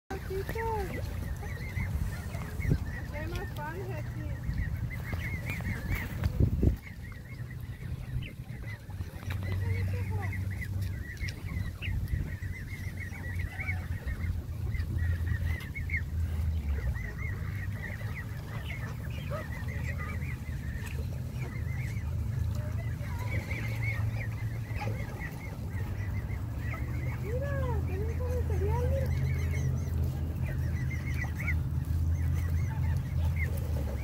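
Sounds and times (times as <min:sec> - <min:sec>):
geese calling: 0:00.1 - 0:34.0
low steady rumble: 0:00.1 - 0:34.0.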